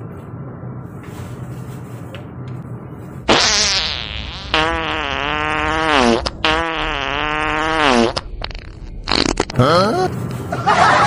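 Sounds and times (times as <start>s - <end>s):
cartoon fart noises: 3.3s - 10.1s.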